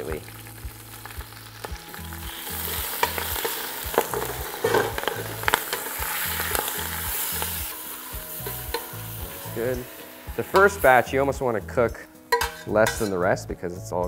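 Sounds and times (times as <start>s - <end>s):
greens sizzling in oil: 0.0s - 14.0s
metal utensil clicking on pot: 3.0s - 5.9s, 8.4s - 8.9s, 12.3s - 13.2s.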